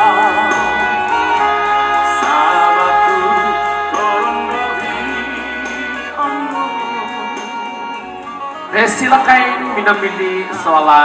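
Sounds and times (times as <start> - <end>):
sustained instrumental music: 0.0 - 11.0.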